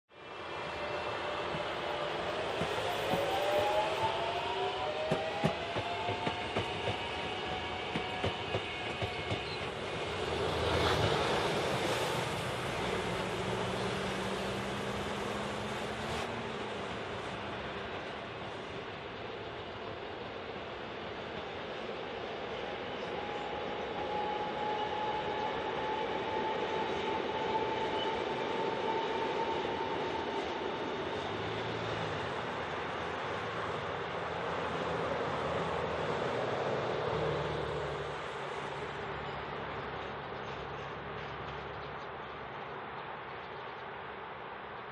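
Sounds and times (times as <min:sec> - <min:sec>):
electric train rumbling on tracks: 0:00.1 - 0:44.9
train wheels clacking: 0:05.0 - 0:11.8.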